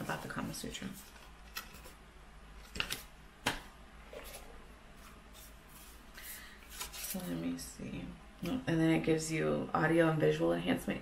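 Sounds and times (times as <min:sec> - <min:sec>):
cards clicking and rustling: 0:01.0 - 0:02.0, 0:02.6 - 0:03.6.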